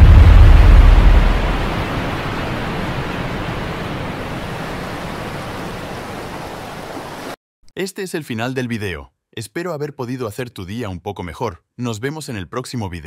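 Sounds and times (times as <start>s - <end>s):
waterfall rushing: 0.0s - 7.4s.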